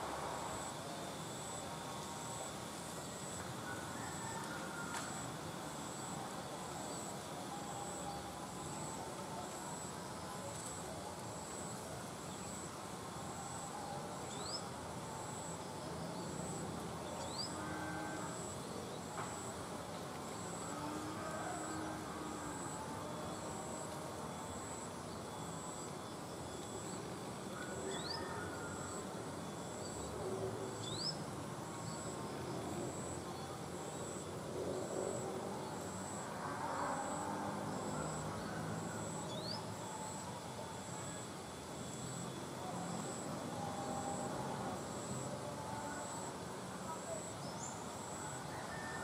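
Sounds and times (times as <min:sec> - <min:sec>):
steady low hiss: 0:00.0 - 0:49.0
insect pulsed high-pitched call: 0:12.4 - 0:19.4, 0:20.4 - 0:30.1, 0:30.8 - 0:32.0, 0:36.0 - 0:42.4.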